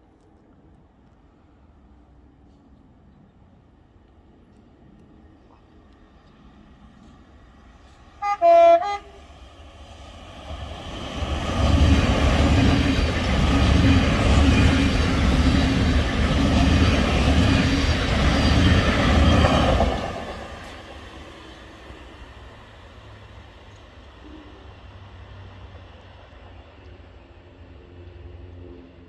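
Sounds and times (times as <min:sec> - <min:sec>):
two-tone train horn: 0:08.2 - 0:09.4
train wheels rumbling on rails: 0:09.0 - 0:29.0.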